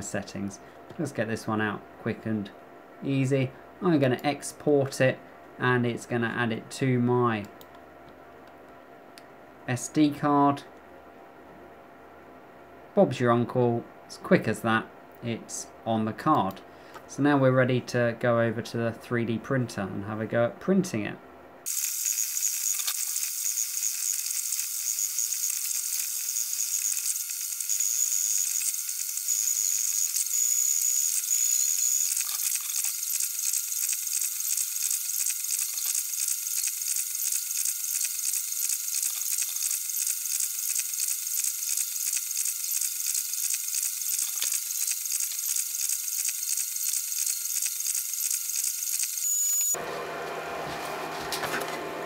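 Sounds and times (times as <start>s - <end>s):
printer motors whirring buzz: 21.7s - 52.0s.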